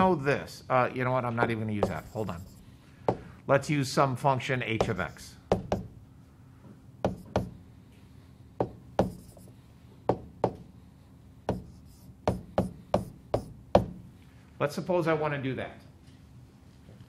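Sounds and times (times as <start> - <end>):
faint steady hum: 0.0 - 17.0
stylus tapping on touchscreen: 1.8 - 2.4, 8.6 - 9.5.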